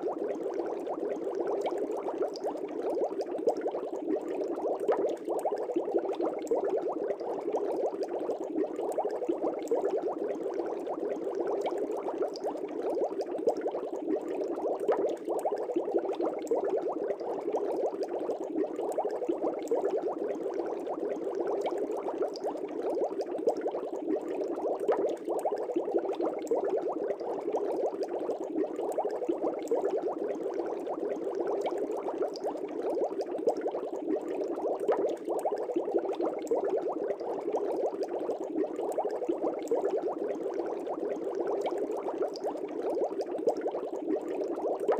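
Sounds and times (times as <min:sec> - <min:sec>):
aquarium water bubbling: 0:00.0 - 0:44.9.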